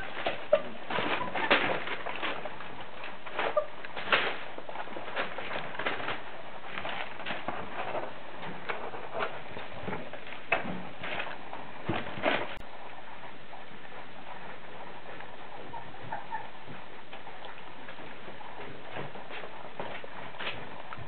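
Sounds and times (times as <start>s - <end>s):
puppies whimpering: 0.0s - 2.2s, 12.9s - 19.6s.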